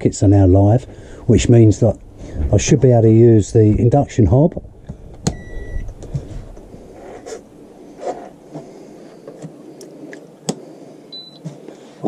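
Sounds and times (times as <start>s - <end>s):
induction hob beep: 5.3s - 6.0s, 11.1s - 11.4s.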